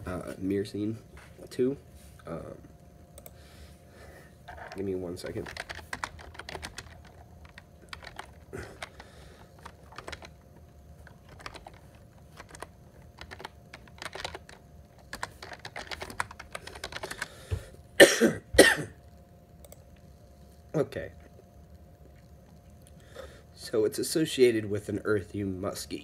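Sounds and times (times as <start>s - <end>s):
keyboard typing clicks: 3.2s - 3.4s, 4.5s - 10.4s, 11.0s - 17.3s, 19.6s - 19.9s
person coughing: 18.0s - 19.0s.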